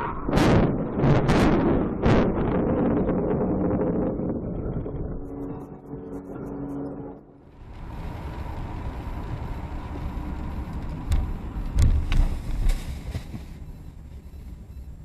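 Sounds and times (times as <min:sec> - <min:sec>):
car road noise on wet road: 0:07.4 - 0:14.2.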